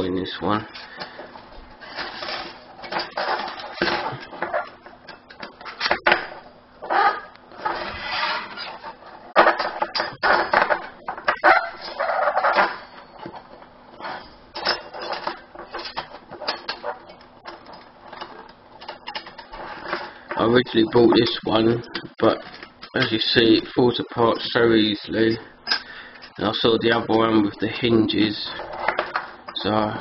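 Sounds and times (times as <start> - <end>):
metal panels clicking and scraping: 1.8 - 23.4.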